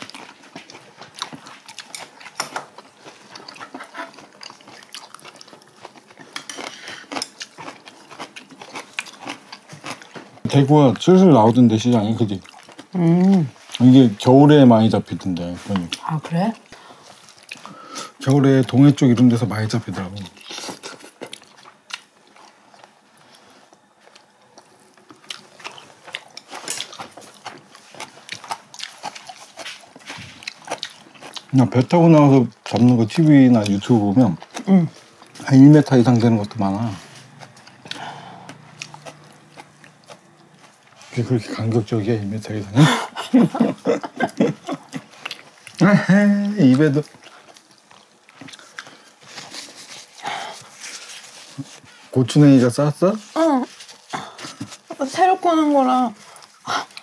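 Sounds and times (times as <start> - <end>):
chewing and mouth smacks: 0.0 - 11.1, 12.4 - 13.9, 15.3 - 17.8, 20.2 - 31.9, 37.2 - 41.8, 43.8 - 45.8, 46.5 - 52.0, 56.2 - 57.0
tongs clicking and scraping dishes: 1.2 - 10.2.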